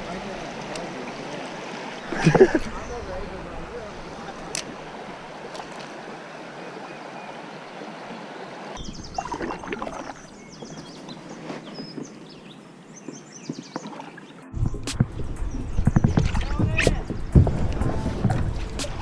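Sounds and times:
creek water running over riffle: 0:00.0 - 0:11.3
kayak paddle splashing: 0:00.0 - 0:14.4
water drips: 0:00.5 - 0:06.2, 0:08.7 - 0:10.8.

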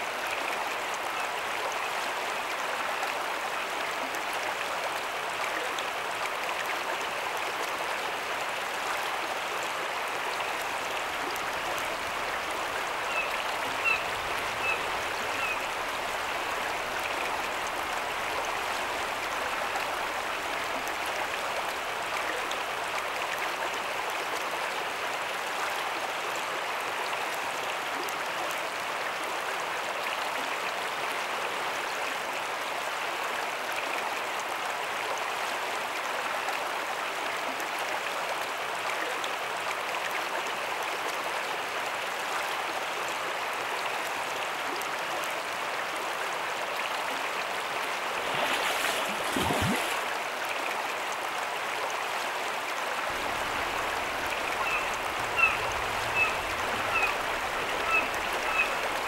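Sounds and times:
river current flowing: 0:00.0 - 0:26.3, 0:39.6 - 0:59.0.

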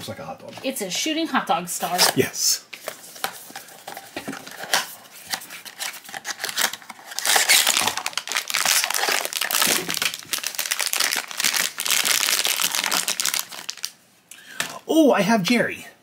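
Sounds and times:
foil bag crinkling: 0:05.4 - 0:14.0.

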